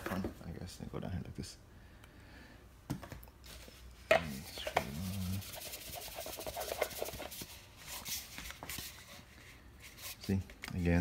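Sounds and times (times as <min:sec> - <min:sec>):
plastic rubbing and scraping: 0:04.2 - 0:10.3.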